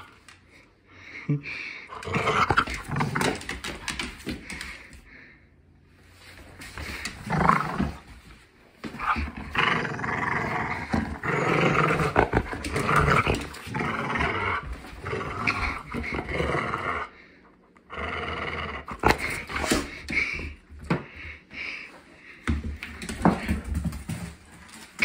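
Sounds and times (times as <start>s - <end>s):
dog growling in play: 1.9s - 4.9s, 6.8s - 8.2s, 8.8s - 20.5s.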